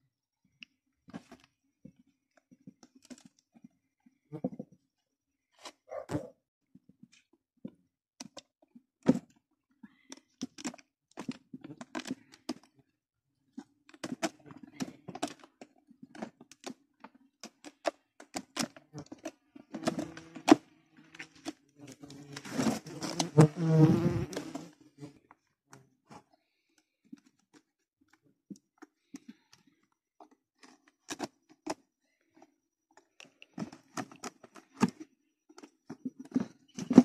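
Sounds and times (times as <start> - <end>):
knife scraping bee nest: 22.0 - 24.7.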